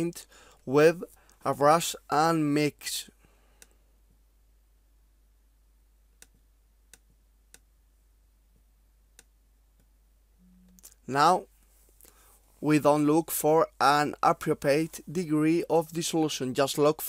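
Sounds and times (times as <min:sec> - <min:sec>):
low hum: 0:10.2 - 0:11.0.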